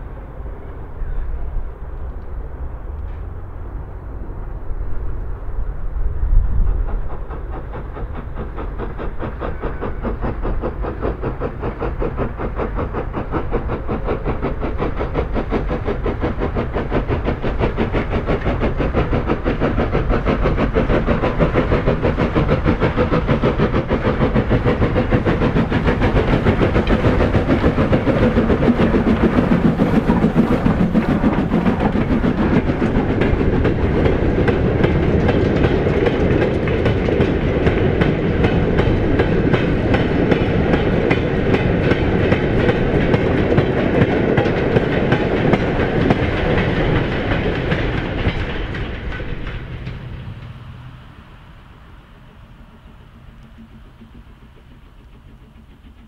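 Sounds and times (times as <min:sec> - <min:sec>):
train wheels clattering over rail joints: 0:02.0 - 0:03.8, 0:04.4 - 0:51.1, 0:52.4 - 0:56.0.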